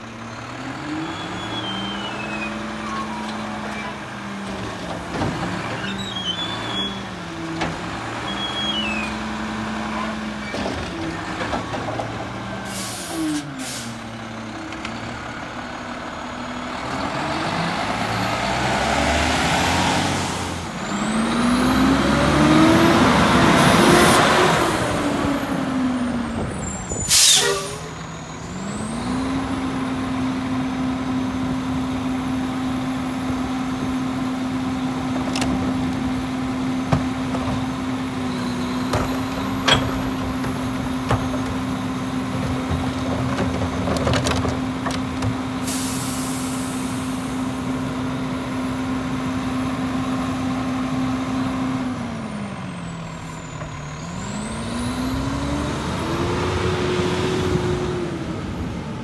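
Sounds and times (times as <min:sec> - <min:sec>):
diesel truck engine running: 0:00.0 - 0:59.0
air brake hiss: 0:12.7 - 0:14.0, 0:27.0 - 0:28.0, 0:45.6 - 0:47.3.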